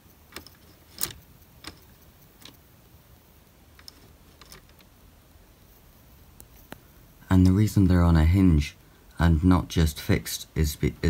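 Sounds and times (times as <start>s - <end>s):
plastic chain clicks: 0.3s - 2.6s, 3.8s - 4.9s.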